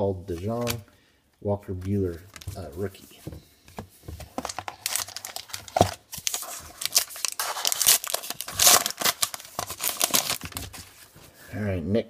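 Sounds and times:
wrapper crinkling and tearing: 0:04.4 - 0:10.8.

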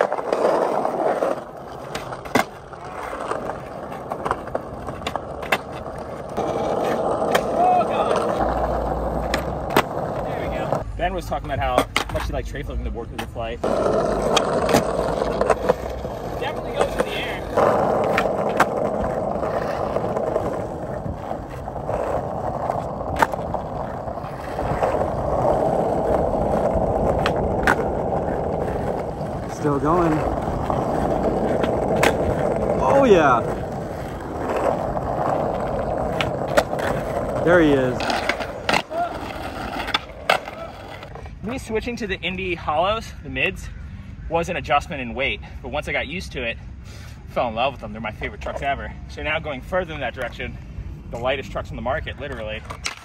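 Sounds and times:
skateboard clacking: 0:00.0 - 0:10.8, 0:11.6 - 0:12.4, 0:13.1 - 0:41.2, 0:52.2 - 0:53.0
skateboard wheels on asphalt: 0:00.0 - 0:43.6, 0:44.4 - 0:53.0.

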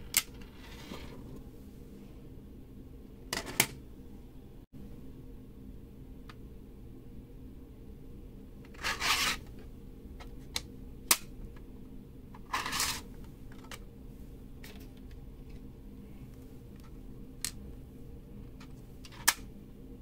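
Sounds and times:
plastic parts scraping: 0:12.4 - 0:13.8.

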